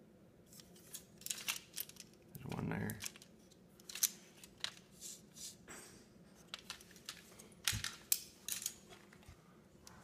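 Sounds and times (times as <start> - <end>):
plastic parts clicking and rattling: 0.6 - 4.9, 6.4 - 9.4.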